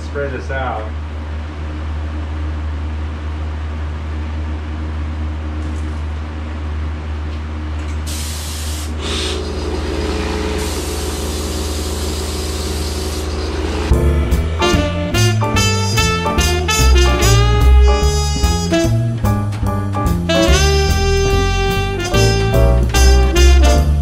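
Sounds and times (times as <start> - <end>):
low machine hum: 0.0 - 24.0
spray gun hissing: 8.1 - 13.9
music: 13.7 - 24.0.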